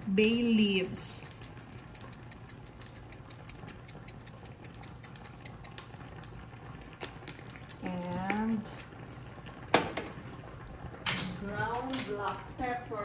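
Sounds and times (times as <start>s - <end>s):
dried leaf flakes rattling from jar: 0.0s - 6.4s, 7.0s - 8.9s.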